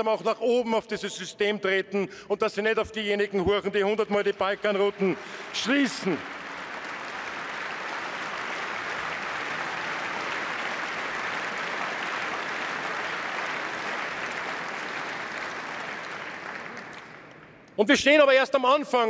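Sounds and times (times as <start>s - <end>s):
crowd applauding: 3.8s - 17.8s.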